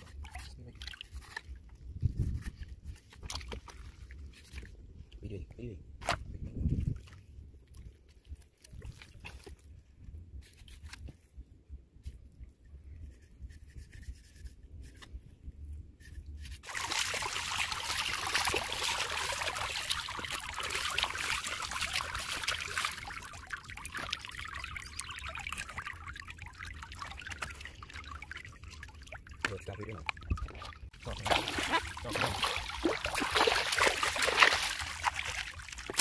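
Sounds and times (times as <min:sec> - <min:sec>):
hands washing in water: 0:16.6 - 0:36.0.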